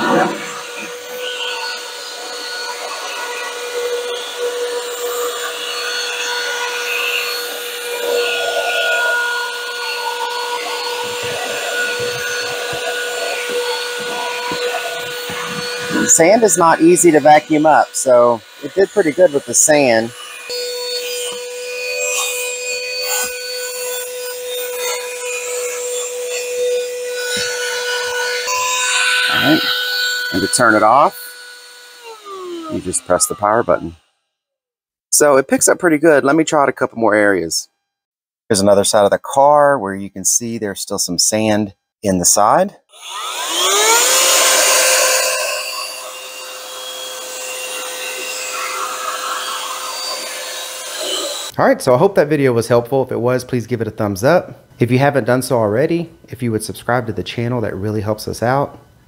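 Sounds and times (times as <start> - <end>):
handheld vacuum cleaner whining: 0.0 - 34.1, 42.9 - 51.6.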